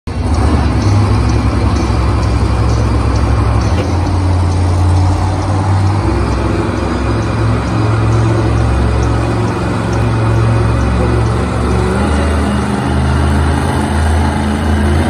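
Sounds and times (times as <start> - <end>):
truck engines idling: 0.1 - 15.0.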